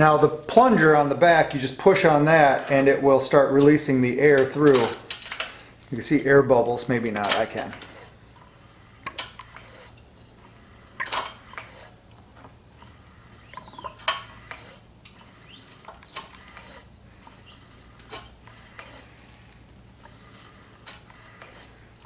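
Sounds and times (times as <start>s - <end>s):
faint squeaky chirps: 12.8s - 19.1s.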